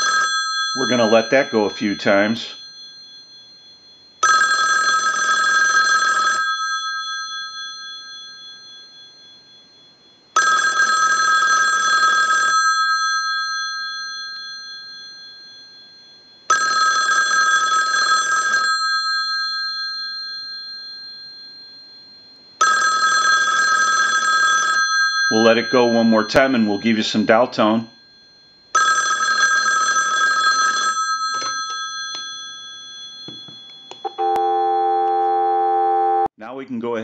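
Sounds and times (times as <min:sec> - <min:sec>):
telephone bell ringing: 0:00.0 - 0:36.3.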